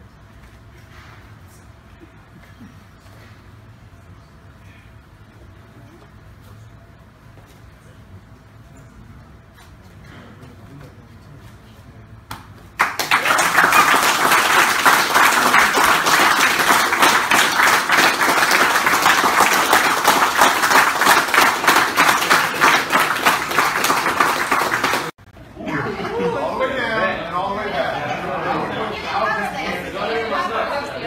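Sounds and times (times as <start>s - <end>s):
group of people clapping: 12.3s - 25.2s.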